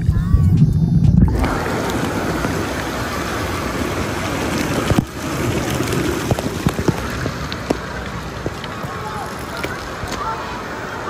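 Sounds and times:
pool water churning and splashing: 1.2 - 11.0
sharp splashes and drips: 1.2 - 11.0.

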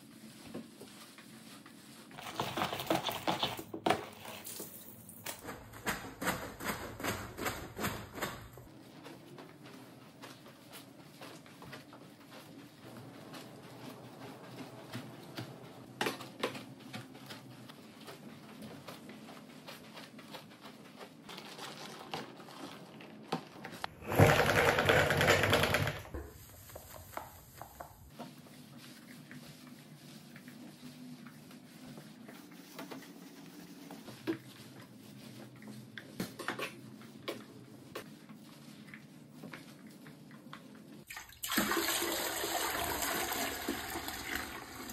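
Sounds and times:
mop scrubbing wet floor: 0.0 - 44.9
mop spinning in wringer: 20.8 - 35.8, 41.6 - 44.9.

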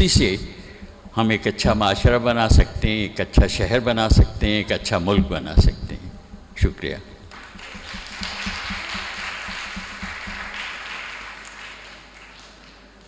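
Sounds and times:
audience applauding: 7.3 - 13.0.

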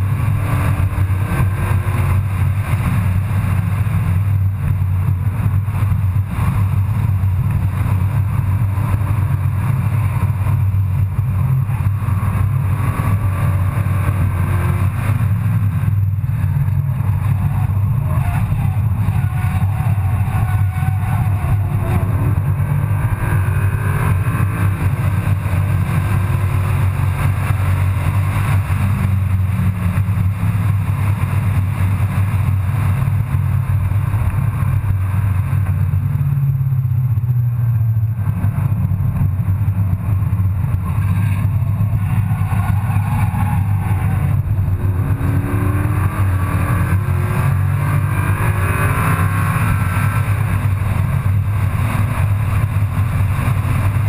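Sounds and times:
car engine drone inside cabin: 0.0 - 54.0
tyre noise: 0.1 - 31.3.

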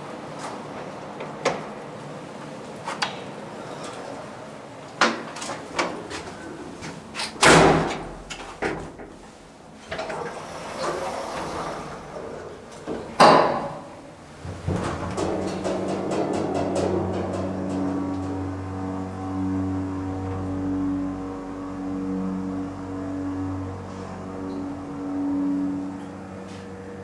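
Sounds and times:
steady hum: 0.0 - 27.0
knocks and clunks: 12.8 - 18.4.

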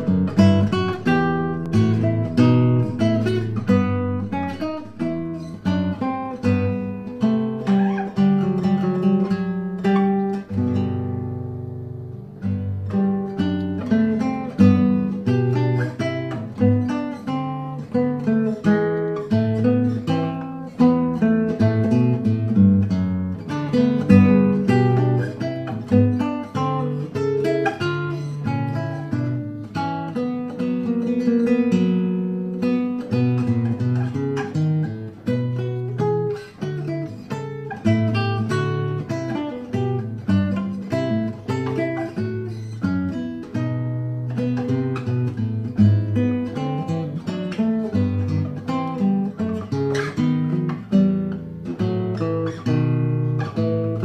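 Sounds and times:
acoustic guitar music: 0.0 - 54.0.

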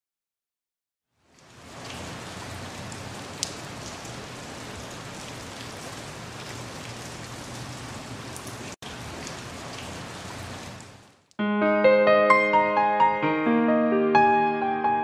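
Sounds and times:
steady rain falling: 1.2 - 11.3.

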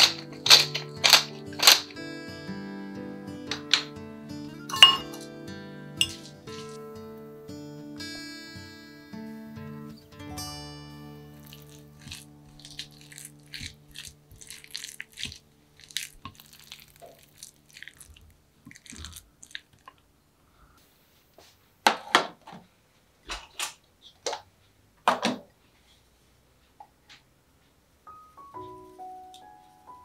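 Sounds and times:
kitchenware clinks and knocks: 0.0 - 1.9, 4.7 - 5.3, 6.0 - 6.8
squishing and scraping food in bowl: 6.0 - 6.8, 11.4 - 20.0.

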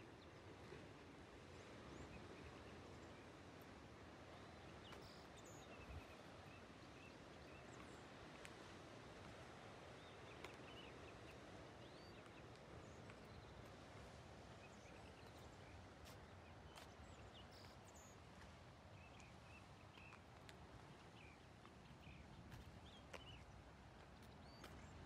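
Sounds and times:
faint outdoor hiss: 0.0 - 25.0
soft high bird chirps: 4.7 - 7.9, 14.7 - 18.2.

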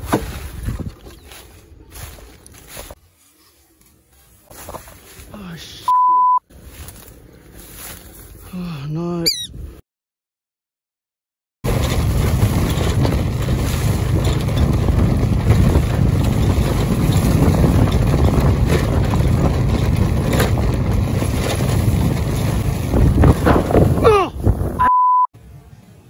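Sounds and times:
wind buffeting microphone: 0.0 - 2.9, 11.7 - 24.8
faint rustles: 0.0 - 5.8, 6.5 - 8.6.

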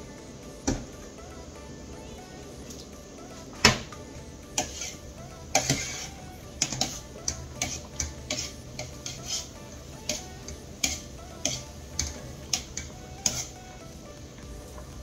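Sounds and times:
quiet background music: 0.0 - 15.0
wire strainer clinking on metal pot: 10.1 - 13.6.

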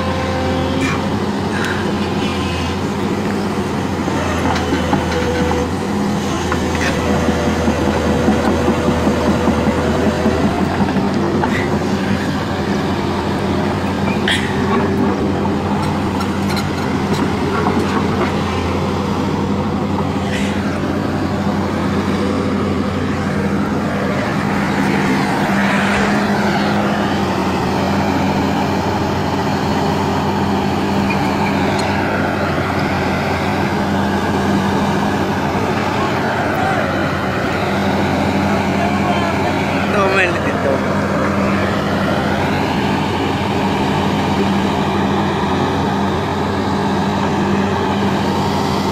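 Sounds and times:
diesel engine running under load: 0.0 - 48.9
hydraulic whine: 0.0 - 48.9
steel tracks clanking: 4.1 - 27.6.

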